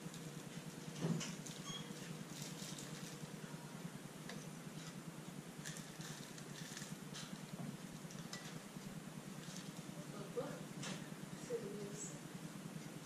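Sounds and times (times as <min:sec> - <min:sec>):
steady low hum: 0:00.0 - 0:13.0
plastic bag rustling: 0:01.4 - 0:03.4, 0:05.6 - 0:07.5.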